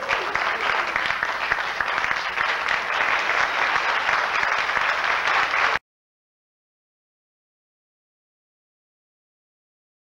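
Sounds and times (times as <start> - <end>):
crowd applauding: 0.0 - 5.8.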